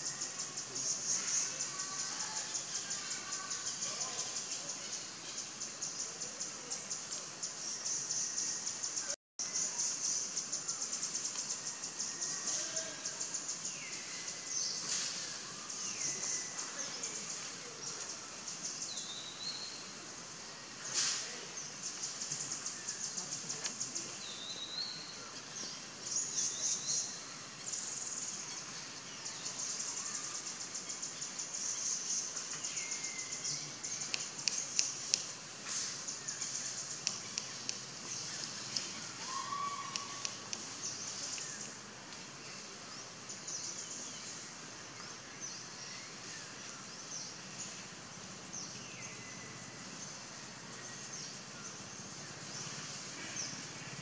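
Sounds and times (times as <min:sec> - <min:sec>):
falling bird chirps: 0:32.2 - 0:41.8
sharp bird ticks: 0:33.9 - 0:35.4, 0:36.4 - 0:39.0, 0:39.8 - 0:41.8.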